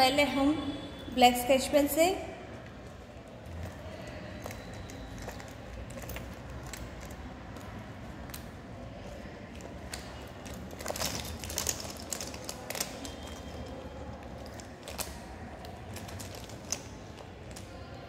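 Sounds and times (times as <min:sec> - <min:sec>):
plastic pens clicking: 0:03.6 - 0:17.7.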